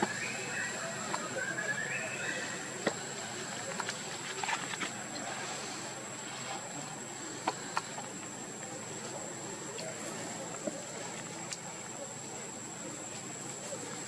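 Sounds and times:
constant high-pitched hum: 0:00.0 - 0:14.0
clicks and rustles in leaf litter: 0:02.9 - 0:08.2.

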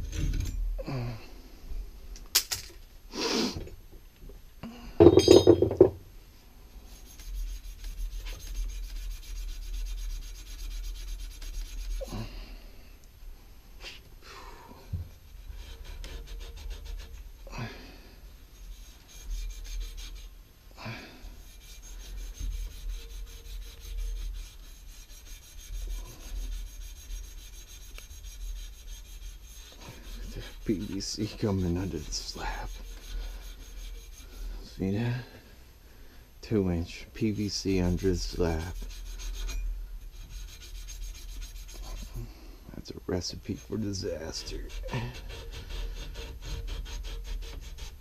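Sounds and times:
hand tool scraping pipework: 0:06.9 - 0:12.4, 0:14.9 - 0:17.8, 0:18.4 - 0:35.4, 0:36.4 - 0:48.0.

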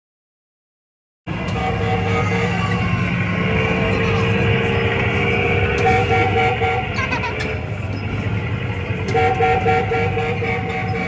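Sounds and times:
electronic horn toots: 0:01.3 - 0:02.8, 0:04.6 - 0:07.0, 0:09.0 - 0:11.0
arcade machine noise: 0:01.3 - 0:11.0.

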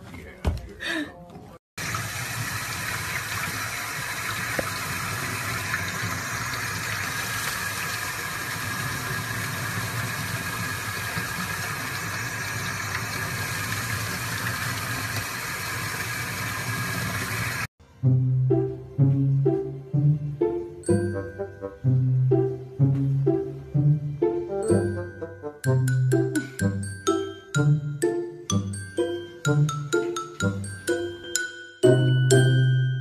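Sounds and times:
tap water running and splashing: 0:01.8 - 0:17.7.

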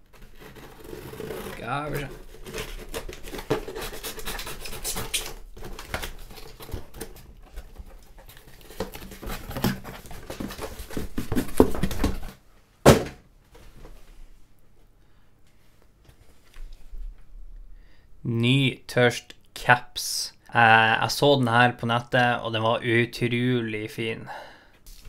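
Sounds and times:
knife cutting cardboard: 0:00.0 - 0:12.3
cardboard tearing and rustling: 0:00.0 - 0:13.1
loud sharp thump: 0:12.8 - 0:13.2.

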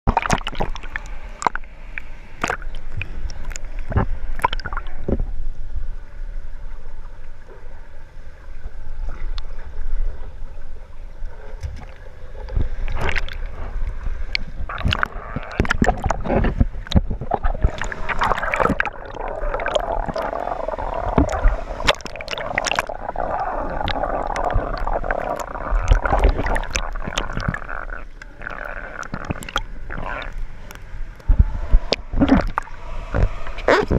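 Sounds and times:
water sloshing and gurgling: 0:00.1 - 0:33.9
low rumble: 0:12.1 - 0:33.9.

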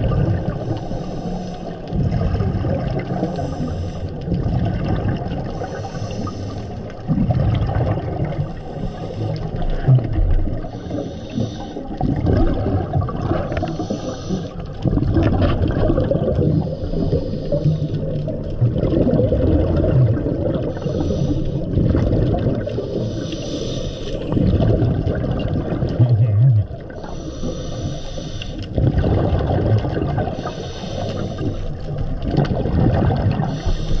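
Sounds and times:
exhaled air bubbling: 0:00.0 - 0:34.0
regulator hiss on inhale: 0:00.5 - 0:01.9, 0:03.2 - 0:04.2, 0:05.5 - 0:07.0, 0:08.4 - 0:09.8, 0:10.6 - 0:12.0, 0:13.5 - 0:14.7, 0:16.5 - 0:18.3, 0:20.7 - 0:21.8, 0:22.7 - 0:24.4, 0:26.9 - 0:28.8, 0:30.3 - 0:32.0, 0:33.5 - 0:34.0.

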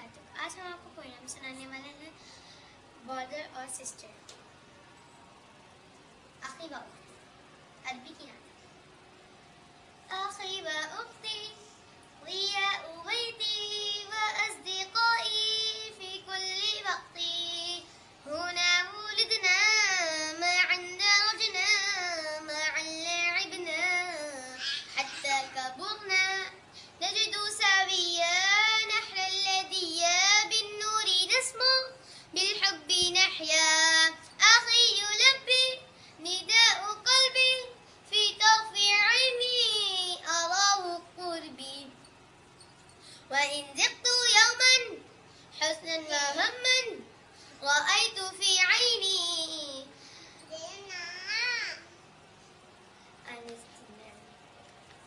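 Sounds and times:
girl singing: 0:10.0 - 0:42.0, 0:43.2 - 0:51.8.

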